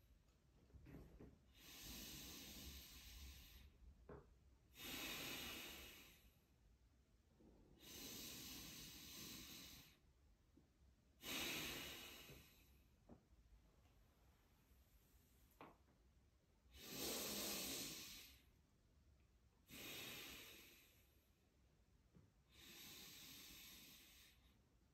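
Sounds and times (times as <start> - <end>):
man breathing deeply: 1.5 - 3.9, 4.7 - 6.4, 7.6 - 10.0, 11.2 - 12.9, 16.7 - 18.6, 19.6 - 21.3, 22.5 - 24.6.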